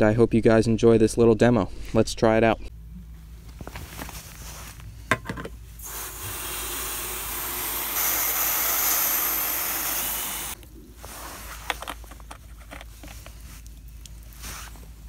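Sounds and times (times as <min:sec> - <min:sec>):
loud steady hiss: 0:05.8 - 0:10.6.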